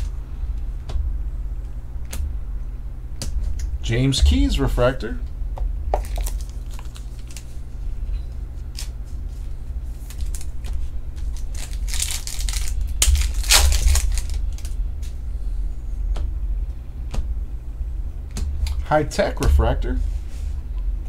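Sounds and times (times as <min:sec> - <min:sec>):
low hum: 0:00.0 - 0:21.0
trading cards sliding and rustling: 0:06.2 - 0:07.6, 0:08.6 - 0:14.8.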